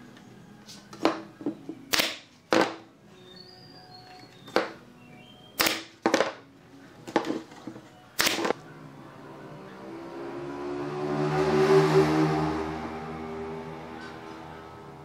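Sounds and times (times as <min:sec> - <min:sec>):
background music: 0:00.0 - 0:15.0
pneumatic nailer firing: 0:01.9 - 0:02.8, 0:05.6 - 0:06.2, 0:08.2 - 0:08.5.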